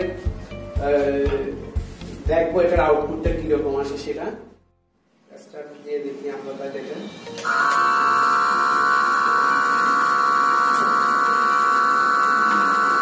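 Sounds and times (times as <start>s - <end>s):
electric air pump buzzing: 7.4s - 13.0s.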